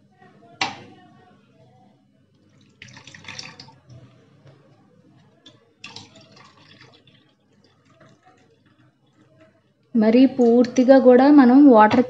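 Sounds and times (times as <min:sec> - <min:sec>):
water trickling into steel cup: 0:02.4 - 0:04.0, 0:05.4 - 0:09.3.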